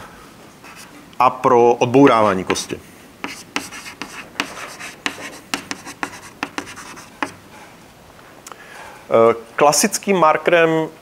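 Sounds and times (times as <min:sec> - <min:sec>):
chalk tapping and scratching on board: 0:00.7 - 0:00.9, 0:02.5 - 0:07.5.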